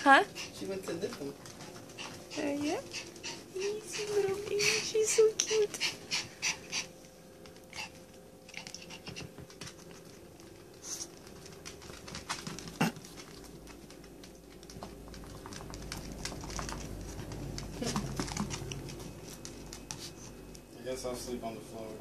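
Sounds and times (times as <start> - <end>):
dog claws clicking on tile: 7.4 - 20.6.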